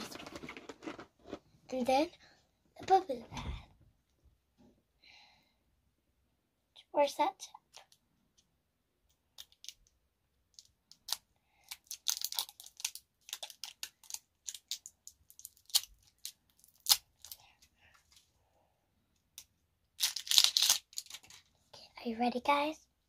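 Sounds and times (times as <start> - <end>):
plastic wrapping crinkling and tearing: 11.0 - 17.4, 20.0 - 21.5.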